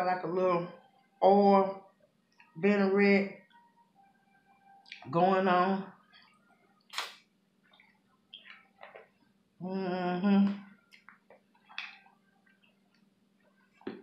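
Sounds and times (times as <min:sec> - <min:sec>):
person humming mmm: 0:09.6 - 0:10.7.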